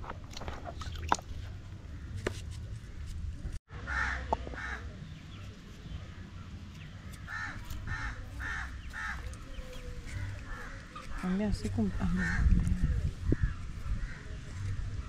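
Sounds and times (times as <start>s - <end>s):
crow cawing: 3.9s - 4.8s, 7.3s - 9.5s.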